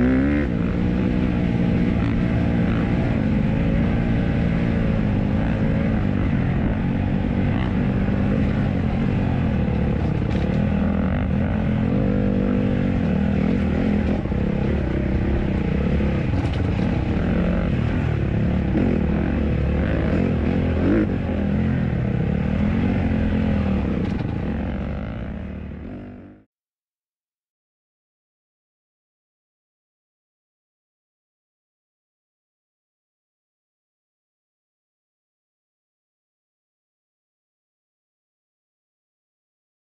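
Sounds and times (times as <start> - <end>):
dirt bike engine revving: 0.0 - 26.4.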